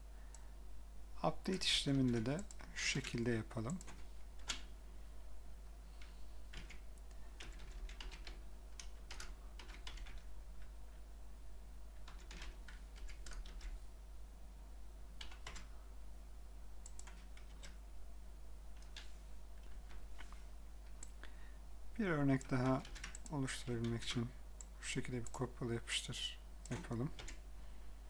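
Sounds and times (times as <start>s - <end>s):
steady low hum: 0.0s - 28.0s
typing on computer keyboard: 1.5s - 4.7s, 6.0s - 10.7s, 12.0s - 13.8s, 15.2s - 15.7s, 16.8s - 17.8s, 22.3s - 25.4s, 26.6s - 27.4s.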